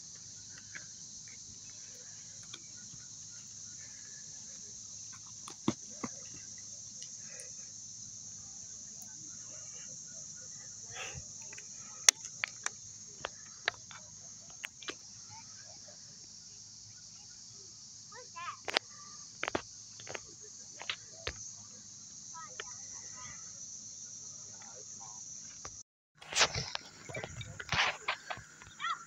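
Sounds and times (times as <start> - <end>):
insects chirping chorus: 0.0 - 29.0.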